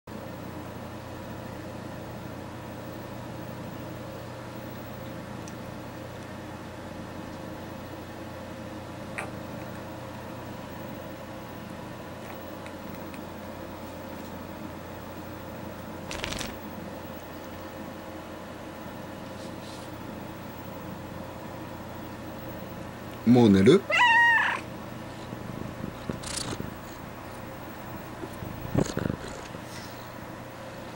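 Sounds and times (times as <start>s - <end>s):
computer cooling fans humming: 0.1s - 30.9s
cat meowing: 23.8s - 24.7s.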